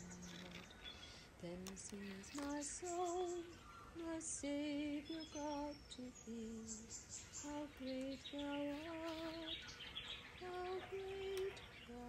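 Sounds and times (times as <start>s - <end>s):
birds chirping faintly: 0.0s - 12.0s
woman singing a hymn: 0.0s - 12.0s.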